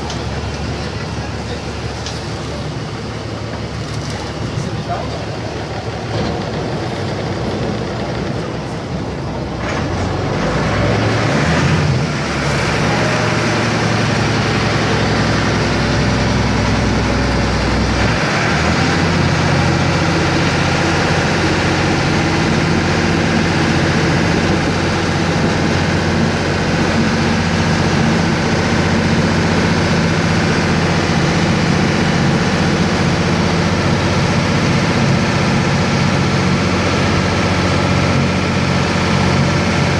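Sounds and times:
boat engine running: 0.0 - 39.9.

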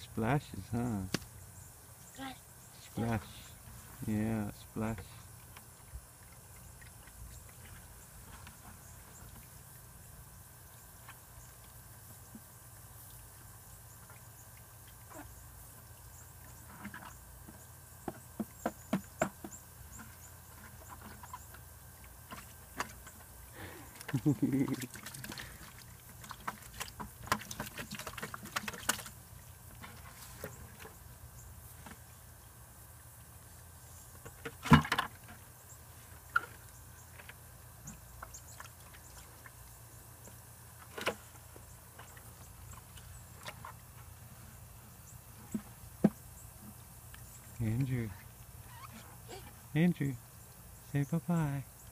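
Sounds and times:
water splashing in bucket: 23.8 - 30.9
hollow thump of bucket: 34.4 - 35.3.

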